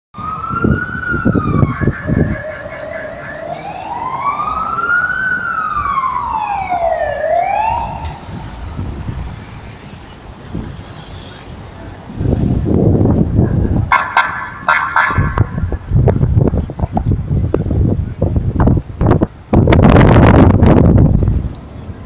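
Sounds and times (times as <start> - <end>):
siren wailing: 0.2 - 9.2.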